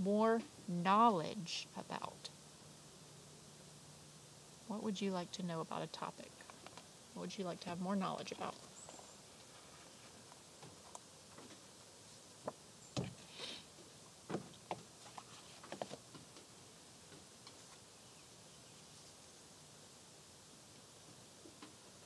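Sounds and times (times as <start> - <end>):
short rustle: 8.5 - 12.3, 15.0 - 16.4.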